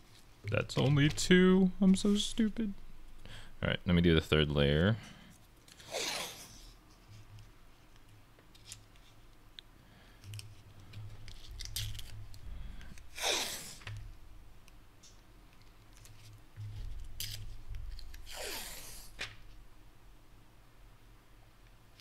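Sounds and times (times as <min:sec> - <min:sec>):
tape ripping off roll: 0:05.7 - 0:06.7, 0:13.0 - 0:14.1, 0:17.1 - 0:19.4
tape crinkling: 0:10.2 - 0:14.1, 0:15.0 - 0:19.5.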